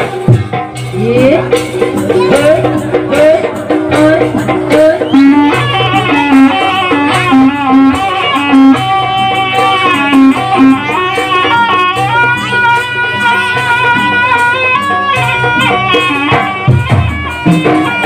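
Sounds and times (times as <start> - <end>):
repeated lower notes: 0.0 - 14.0
high melody with pitch bends: 0.8 - 18.0.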